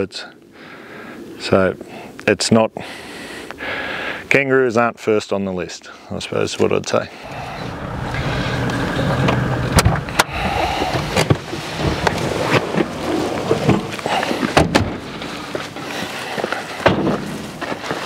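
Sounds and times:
vehicle engine running: 7.2 - 17.8
knocks and rattles from bumps: 8.7 - 15.9, 16.8 - 18.0.

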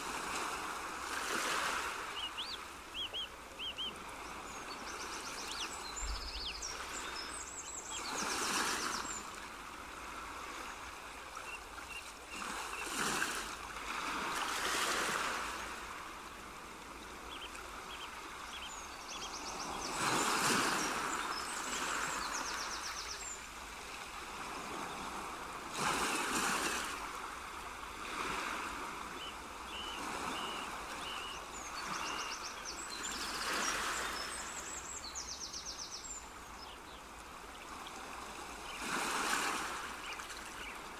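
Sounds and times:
rushing water: 0.0 - 40.9
small birds chirping: 2.1 - 9.3, 17.2 - 23.4, 29.2 - 37.0.

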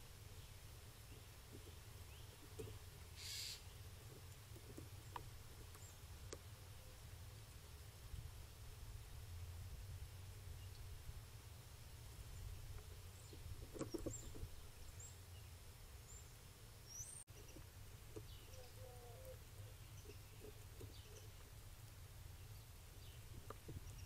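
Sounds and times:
faint bird chirps: 3.2 - 3.8, 13.1 - 21.4
soft clicks and scrapes: 12.7 - 14.6.

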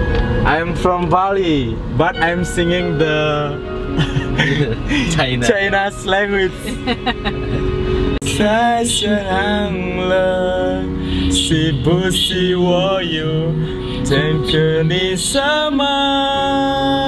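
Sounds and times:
music accompaniment: 0.0 - 17.0
man singing: 2.2 - 3.7, 8.2 - 17.0.

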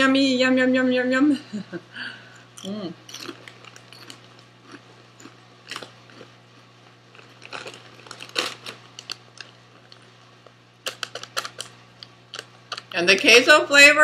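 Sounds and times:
chewing crunchy chips: 2.4 - 13.0.

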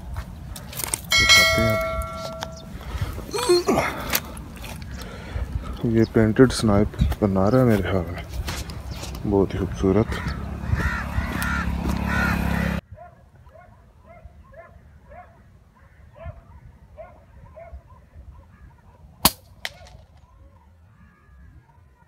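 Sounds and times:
bird calling: 0.4 - 6.2, 8.7 - 12.8
air rifle shot: 19.2 - 20.0.

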